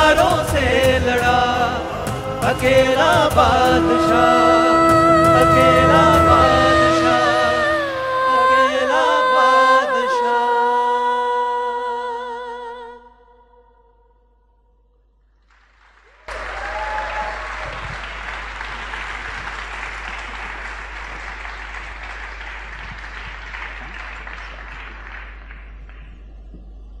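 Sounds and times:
person singing: 0:00.0 - 0:13.5
audience applauding: 0:15.5 - 0:26.2.

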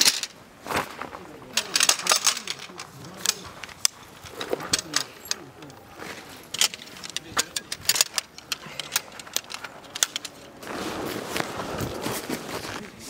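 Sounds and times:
steady rustling: 0:00.0 - 0:13.0
metal gear clinking: 0:01.5 - 0:10.6.

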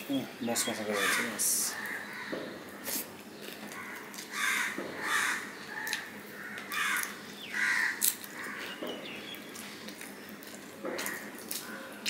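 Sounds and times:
crow cawing: 0:00.9 - 0:02.8, 0:03.7 - 0:08.8, 0:11.0 - 0:11.9.

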